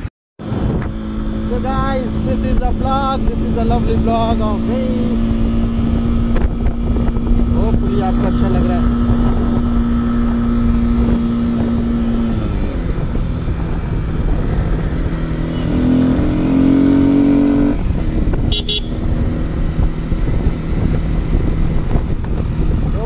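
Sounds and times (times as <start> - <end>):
motorcycle engine accelerating: 0.0 - 23.0.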